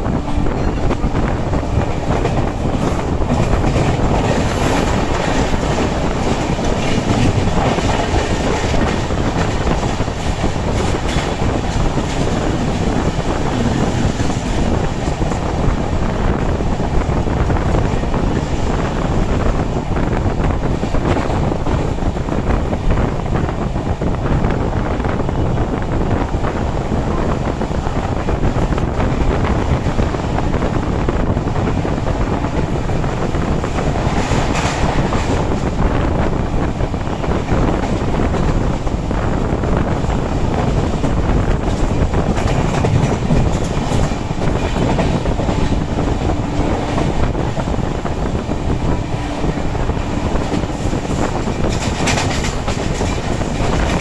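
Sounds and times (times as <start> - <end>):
passing train: 0.0 - 54.0
rushing wind: 0.0 - 54.0
train rumble: 0.0 - 54.0
wheels clattering over rails: 37.2 - 54.0.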